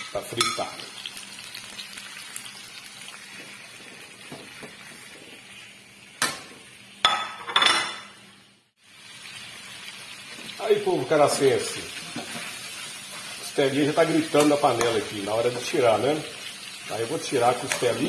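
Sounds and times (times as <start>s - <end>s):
meat sizzling in a pan: 0.0s - 7.0s, 8.3s - 18.0s
metal spoon clinking and scraping pan: 17.6s - 18.0s.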